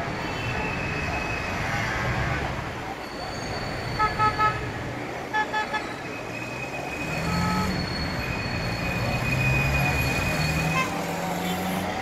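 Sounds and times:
street traffic: 0.0 - 12.0
car horn beeping: 7.2 - 7.8.

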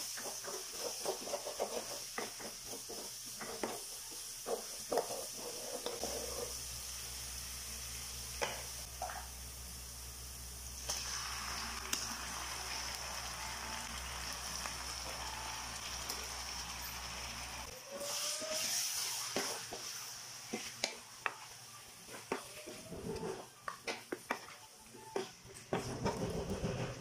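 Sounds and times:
oil sizzling in a pan: 0.0 - 24.8.

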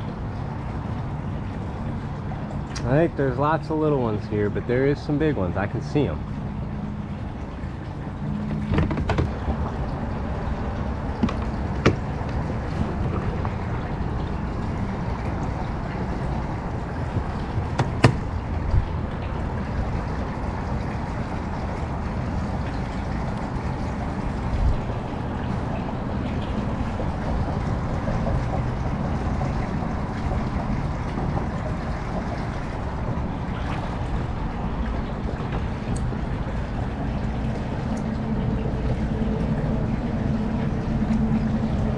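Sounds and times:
low rumbling noise: 0.0 - 41.9
sharp clicks and knocks: 8.6 - 9.7, 11.2 - 13.6, 17.2 - 18.3.

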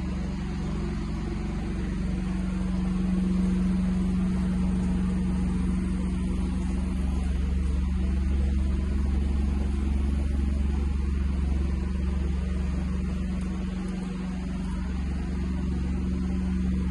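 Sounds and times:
low droning hum: 0.0 - 16.9.

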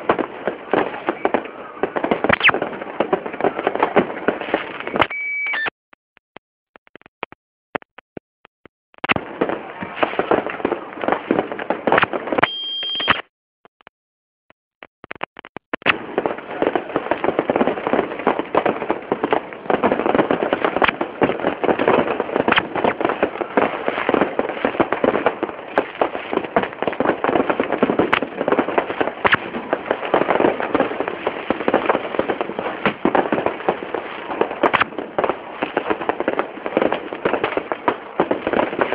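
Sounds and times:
fireworks crackling and banging: 0.0 - 5.1, 9.0 - 13.2, 15.0 - 38.9.

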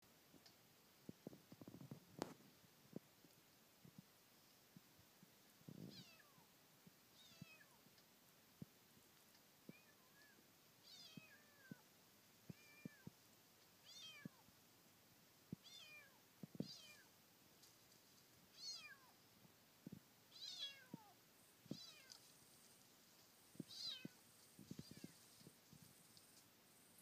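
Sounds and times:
kitten meowing: 13.8 - 14.4, 15.6 - 17.1, 18.6 - 19.1, 20.3 - 21.1, 21.7 - 22.1, 23.7 - 24.2, 24.8 - 25.2.

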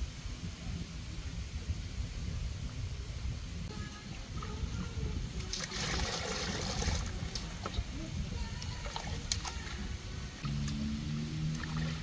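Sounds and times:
water splashing and trickling: 4.1 - 12.0.

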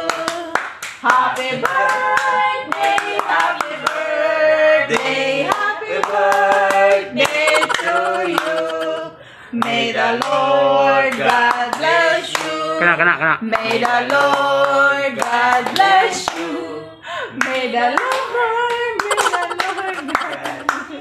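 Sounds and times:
hand claps: 0.1 - 4.0, 5.0 - 10.4, 18.0 - 21.0
man singing slow melody: 7.2 - 9.8.

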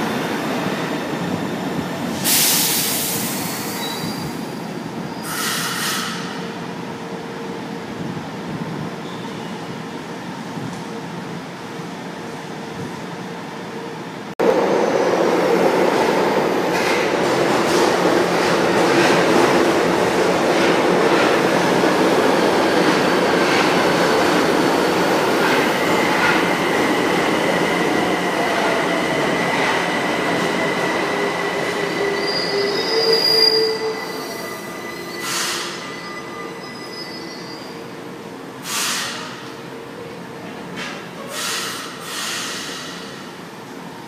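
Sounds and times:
short hisses: 41.4 - 43.1.

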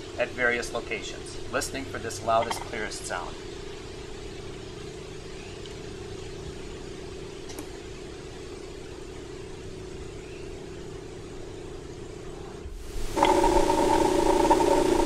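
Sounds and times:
air compressor humming: 12.7 - 15.0.

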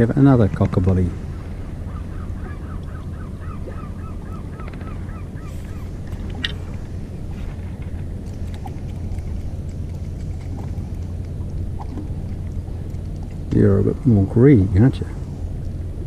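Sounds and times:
steady low rumble: 0.0 - 16.0
gull calling: 1.2 - 7.7.

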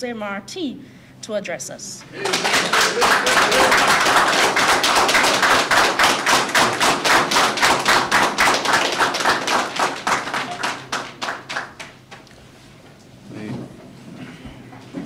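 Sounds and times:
audience applauding: 2.1 - 12.2.

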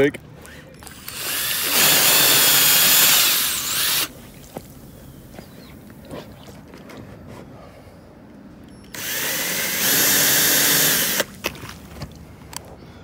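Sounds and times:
power drill whining: 0.8 - 4.1, 8.9 - 11.3.

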